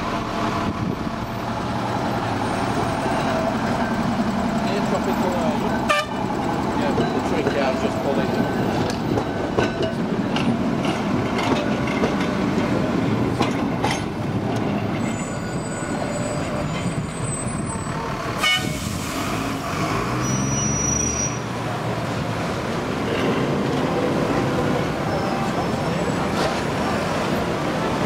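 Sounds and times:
steady traffic noise: 0:00.0 - 0:28.0
tram wheels clicking over rail joints: 0:00.3 - 0:18.3, 0:21.6 - 0:28.0
tram horn toot: 0:05.8 - 0:06.3, 0:18.4 - 0:19.0.

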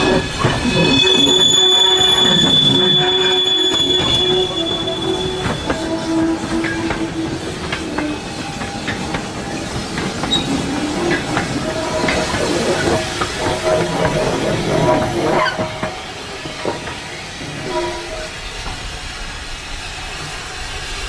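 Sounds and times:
wagon wheels squealing on rails: 0:00.0 - 0:21.0
wheels clicking over rail joints: 0:04.9 - 0:17.1.

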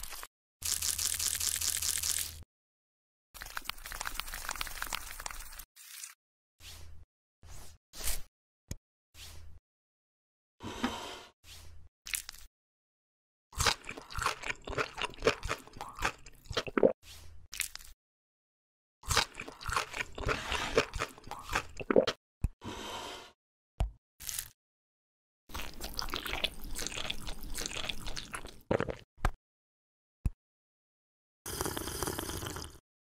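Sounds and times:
crunching bites and chewing: 0:13.6 - 0:16.7, 0:17.5 - 0:18.0, 0:19.0 - 0:21.8, 0:25.5 - 0:29.0.

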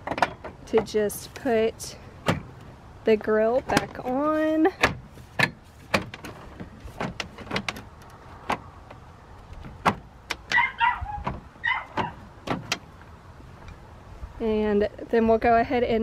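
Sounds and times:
plastic grille clicking and knocking: 0:03.6 - 0:10.6.

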